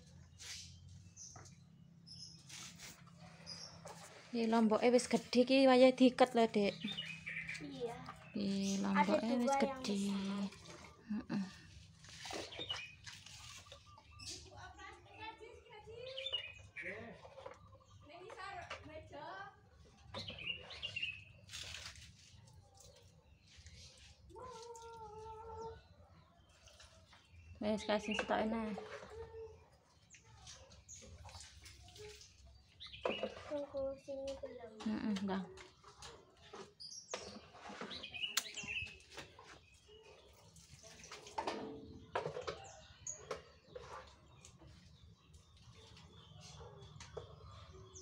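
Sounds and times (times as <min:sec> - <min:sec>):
small birds chirping: 0:00.0 - 0:48.0
water poured from bucket: 0:11.7 - 0:13.9, 0:20.6 - 0:22.8.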